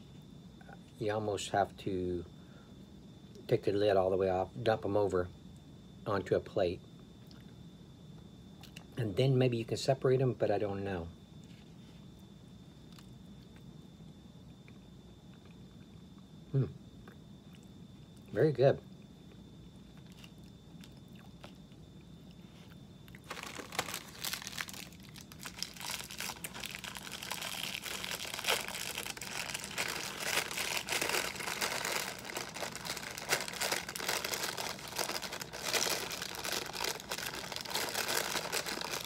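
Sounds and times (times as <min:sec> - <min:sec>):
plastic wrapper crinkling: 0:23.2 - 0:39.0.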